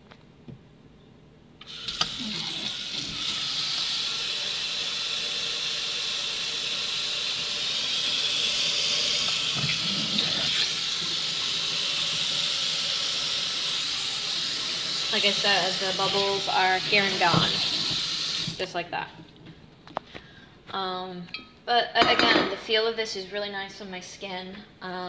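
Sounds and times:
tap water running into sink: 0:01.6 - 0:18.6.

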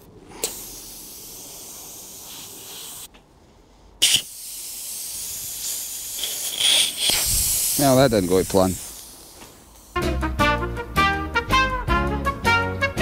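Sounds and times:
air hissing out of a tyre: 0:00.0 - 0:10.1.

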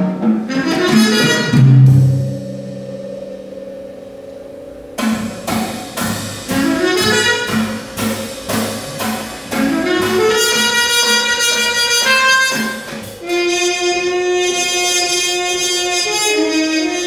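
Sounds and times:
jazz trumpet playing: 0:00.0 - 0:03.3, 0:05.0 - 0:17.0
drum strokes: 0:00.0 - 0:16.1.

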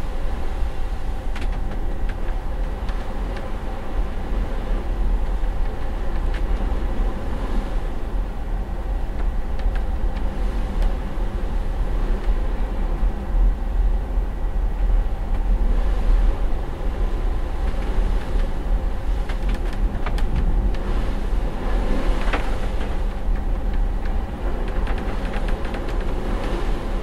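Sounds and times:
ship engine drone: 0:00.0 - 0:27.0
clicks knocks and creaks: 0:01.3 - 0:03.5, 0:19.2 - 0:20.8.

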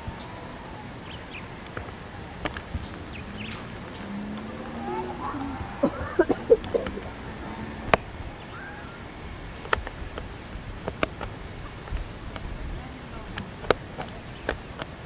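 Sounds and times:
faint voice: 0:04.7 - 0:07.3.

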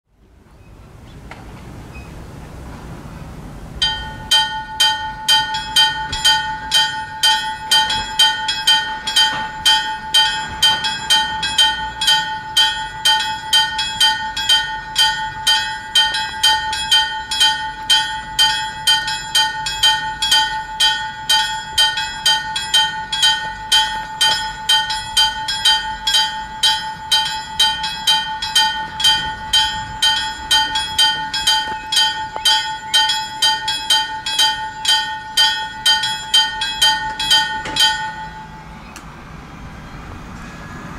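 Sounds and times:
level crossing bell ringing: 0:03.8 - 0:38.9.

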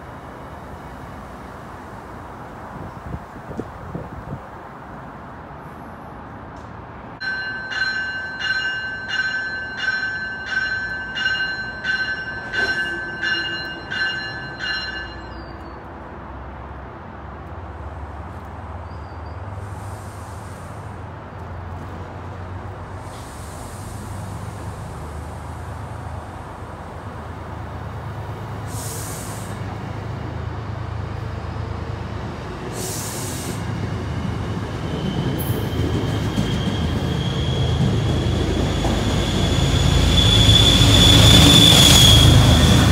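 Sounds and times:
train coaches rumbling past: 0:00.0 - 0:42.9
train bell ringing: 0:07.2 - 0:15.8
short hisses: 0:28.7 - 0:29.6, 0:32.7 - 0:33.6
faint wheel squeal: 0:34.9 - 0:42.8.

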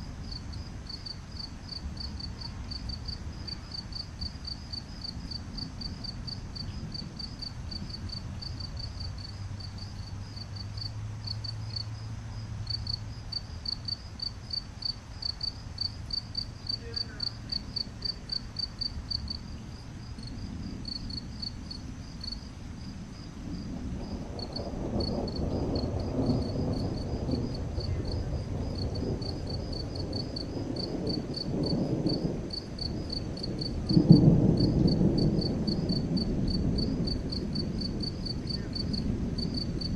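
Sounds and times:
crickets chirping: 0:00.0 - 0:39.9
thunder rumbling: 0:00.0 - 0:39.9
thunder clap: 0:20.2 - 0:39.9.

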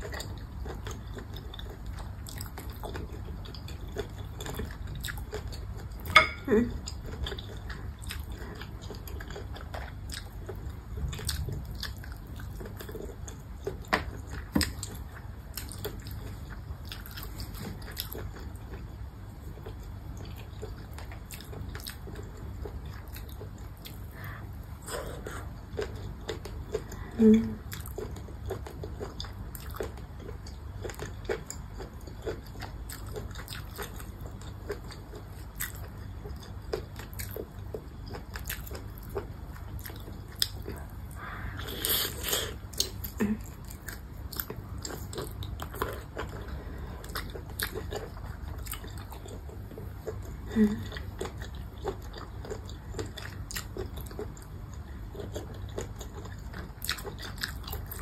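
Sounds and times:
chewing and biting squid: 0:27.7 - 0:58.0.

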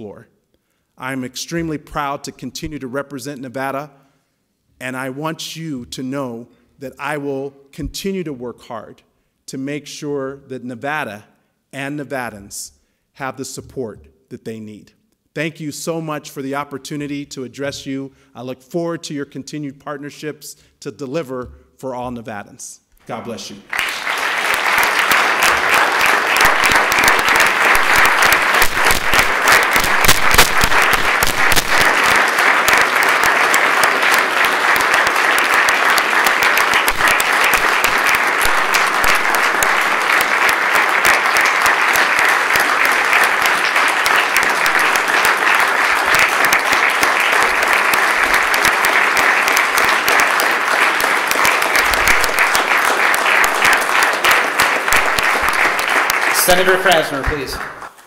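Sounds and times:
crowd applauding: 0:23.5 - 0:58.0.

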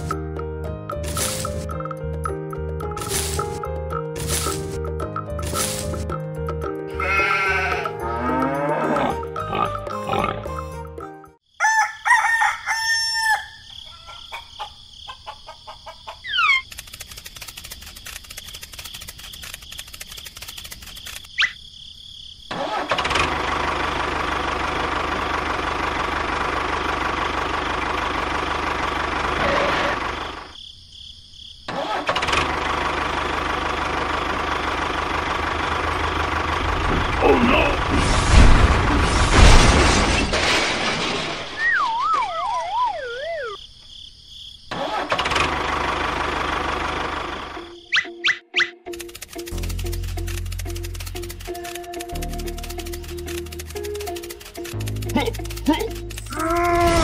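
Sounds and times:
rooster crowing: 0:11.5 - 0:16.3
small clicks: 0:16.5 - 0:21.6, 0:48.8 - 0:57.0
motor running: 0:48.9 - 0:57.0.

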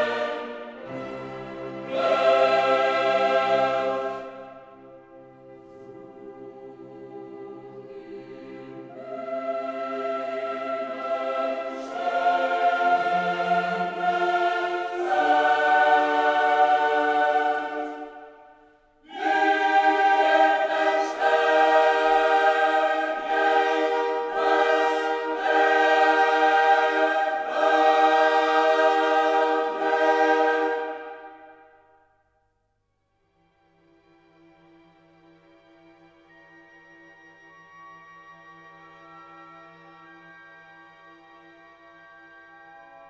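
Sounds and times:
choir singing held chords: 0:00.0 - 0:32.1.

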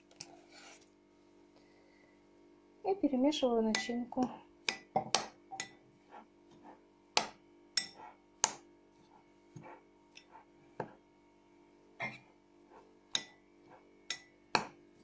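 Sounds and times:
spoon clinking against a bowl: 0:04.7 - 0:05.8, 0:07.8 - 0:08.0, 0:14.1 - 0:14.4.

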